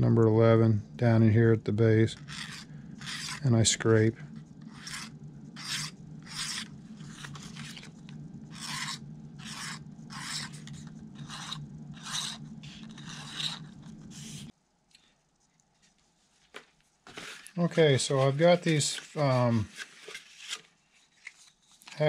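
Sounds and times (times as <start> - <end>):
knife blade scraping plastic: 2.2 - 3.5, 4.3 - 14.5.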